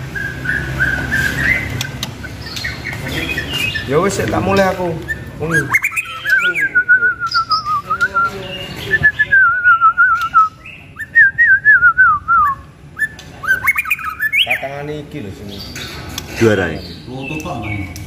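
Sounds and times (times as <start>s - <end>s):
whistled warbling song: 0.0s - 1.9s, 5.0s - 14.6s.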